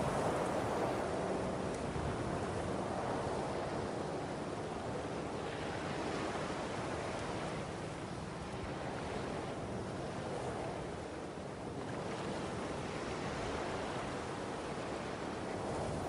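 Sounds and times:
ocean surf on shore: 0:00.0 - 0:02.1.

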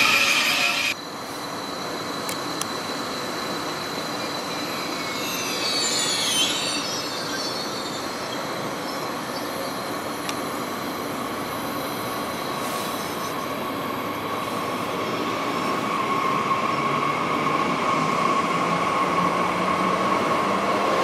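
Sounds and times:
high wheel squeal: 0:00.0 - 0:01.6, 0:03.1 - 0:10.0
train rolling on rails: 0:00.0 - 0:21.0.

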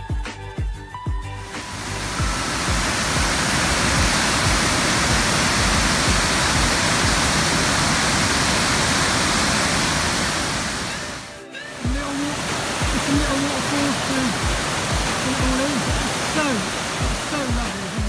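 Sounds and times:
waterfall rushing: 0:01.4 - 0:18.0.

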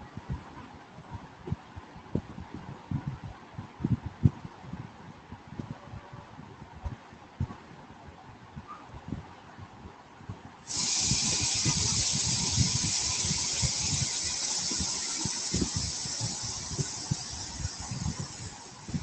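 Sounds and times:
soft low thumps: 0:00.1 - 0:07.8
high-pitched hiss: 0:10.7 - 0:19.0.

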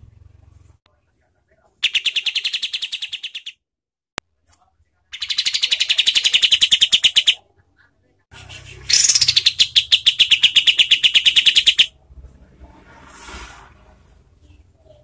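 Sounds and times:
bird singing rapid notes: 0:01.8 - 0:03.6, 0:05.1 - 0:07.4, 0:08.8 - 0:11.9.

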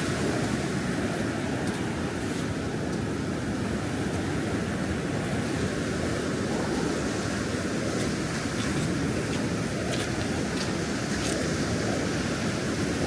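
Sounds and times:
ocean waves washing onto beach: 0:00.0 - 0:13.0.

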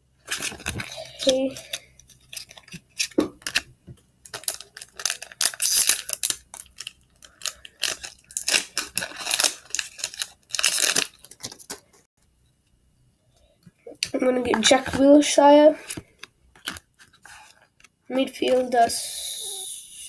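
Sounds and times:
foil wrapper crinkling and tearing: 0:00.2 - 0:12.0.

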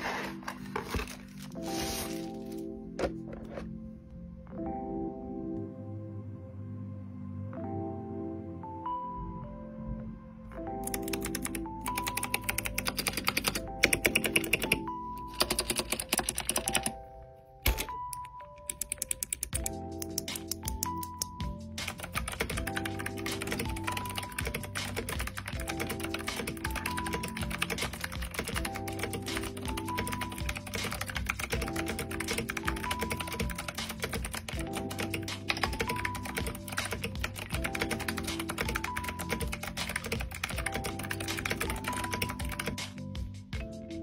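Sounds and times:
background music: 0:00.0 - 0:44.0
fast typing on mechanical keyboard: 0:10.8 - 0:17.0, 0:17.7 - 0:21.3, 0:21.9 - 0:42.8.

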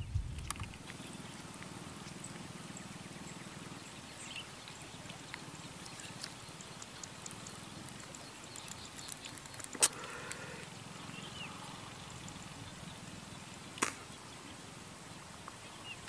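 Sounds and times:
sharp click: 0:00.0 - 0:00.8
faint clicks and ticks: 0:00.0 - 0:02.4, 0:04.6 - 0:10.6
low steady hum: 0:00.0 - 0:04.9.

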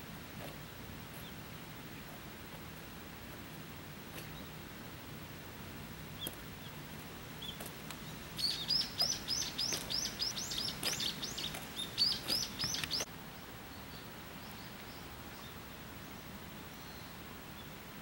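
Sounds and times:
small bird chirping: 0:00.4 - 0:05.3, 0:06.0 - 0:13.1.

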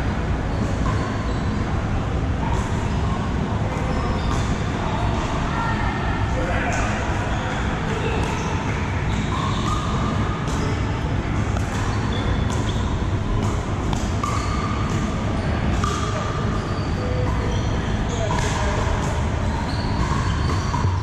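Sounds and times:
steady low hum: 0:00.0 - 0:21.0
pickleball paddles striking ball: 0:11.5 - 0:15.1, 0:15.7 - 0:16.4, 0:18.3 - 0:19.2.

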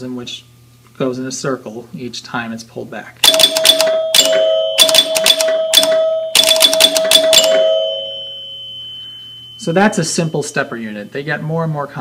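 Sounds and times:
bell-like tone ringing: 0:03.3 - 0:11.5.

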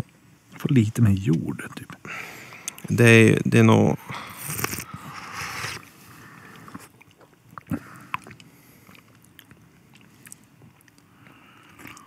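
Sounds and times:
person sipping tea: 0:04.0 - 0:09.2, 0:10.0 - 0:12.0
small mouth clicks: 0:04.4 - 0:05.0, 0:06.7 - 0:11.1.

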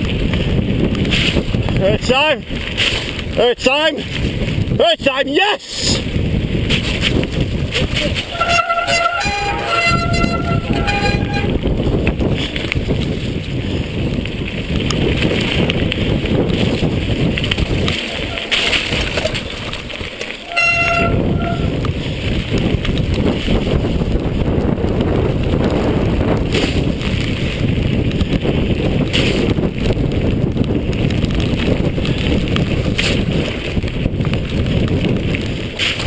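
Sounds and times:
bike rattling over bumps: 0:00.0 - 0:04.8, 0:06.0 - 0:36.0
tyres rolling over gravel: 0:00.0 - 0:04.8, 0:06.0 - 0:36.0
wind rumble on microphone: 0:00.0 - 0:36.0
short steady tone: 0:08.3 - 0:11.6, 0:20.5 - 0:21.7.

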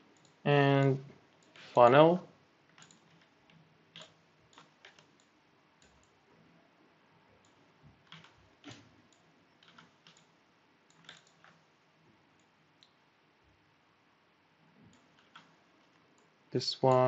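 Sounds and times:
computer mouse clicks: 0:00.1 - 0:00.4, 0:02.7 - 0:06.2, 0:07.4 - 0:11.6, 0:14.8 - 0:16.3.

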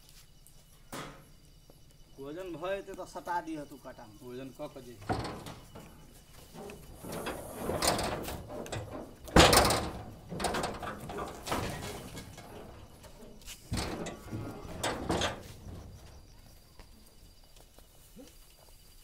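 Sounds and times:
sacks rustling and scraping: 0:11.0 - 0:14.7.

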